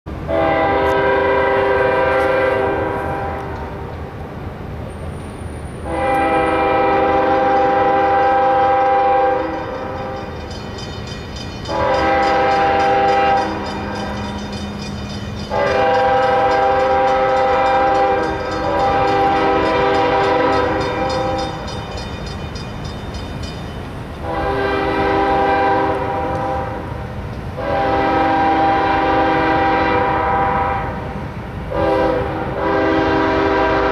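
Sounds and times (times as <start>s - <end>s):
low rumble of train: 0.1s - 33.9s
locomotive air horn blasts: 0.2s - 3.9s, 5.8s - 10.2s, 11.7s - 14.2s, 15.5s - 21.6s, 24.2s - 27.0s, 27.6s - 33.9s.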